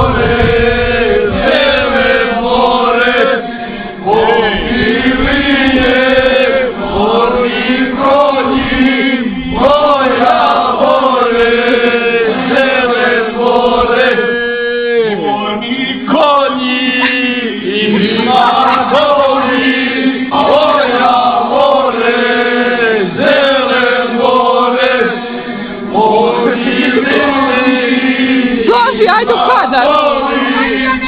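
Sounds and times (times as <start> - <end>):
men singing in unison: 0.0 - 31.0.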